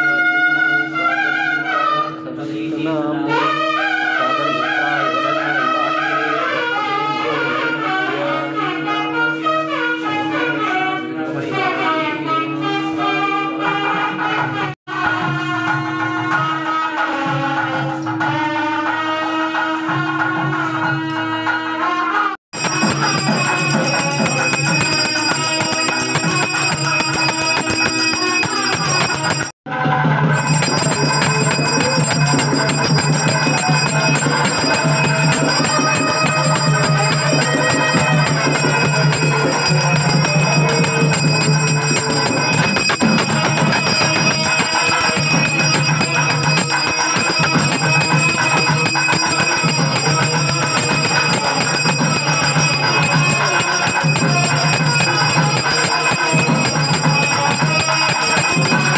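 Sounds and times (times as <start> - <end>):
devotional music: 15.0 - 58.9
bell ringing: 20.8 - 58.9.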